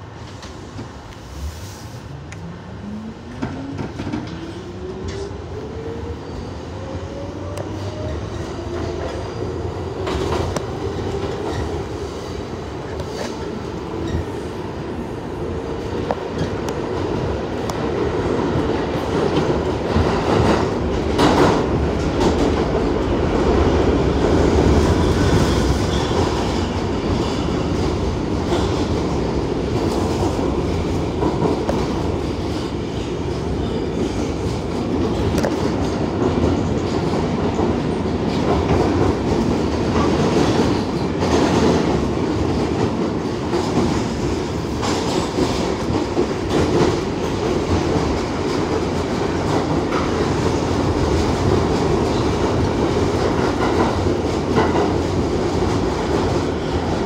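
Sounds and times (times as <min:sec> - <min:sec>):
train rumble: 0:00.0 - 0:57.0.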